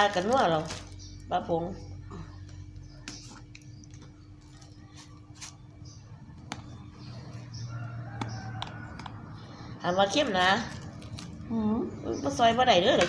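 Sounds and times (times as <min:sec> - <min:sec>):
low steady hum: 0:00.0 - 0:13.0
faint clicks and taps: 0:06.4 - 0:06.8, 0:08.2 - 0:09.2.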